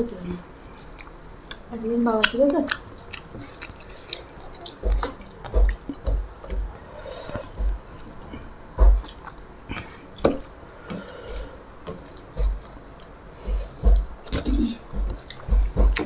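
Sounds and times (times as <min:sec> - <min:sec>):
dull thumps: 0:07.4 - 0:07.9, 0:08.7 - 0:09.1, 0:13.5 - 0:16.0.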